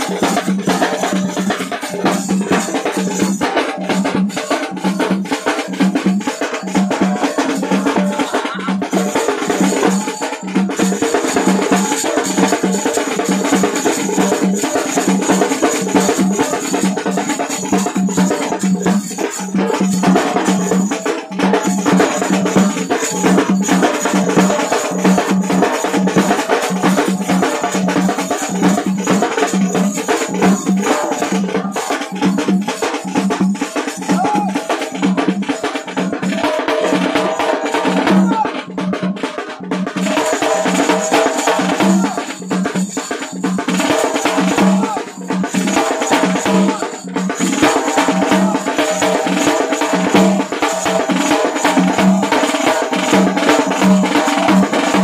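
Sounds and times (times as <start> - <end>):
small hand cymbals: 0.0 - 38.2
barrel drums beating: 0.0 - 55.0
snare drums: 0.0 - 55.0.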